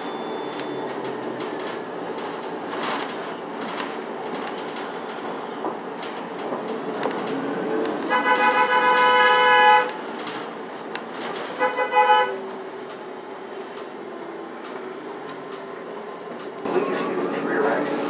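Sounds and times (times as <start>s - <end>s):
city bus running: 0.0s - 18.0s
vehicle horn honking: 8.1s - 10.0s, 11.6s - 12.4s.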